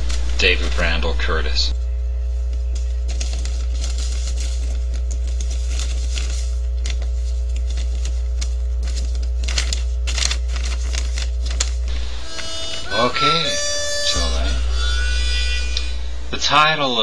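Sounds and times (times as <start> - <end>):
low electrical hum: 0.0 - 17.0
paper rustling and crinkling: 2.2 - 13.1.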